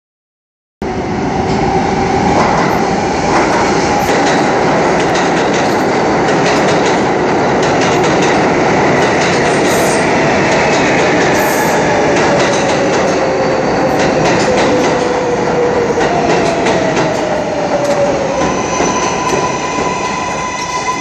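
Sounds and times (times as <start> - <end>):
train wheels rumbling on rail: 0.9 - 21.0.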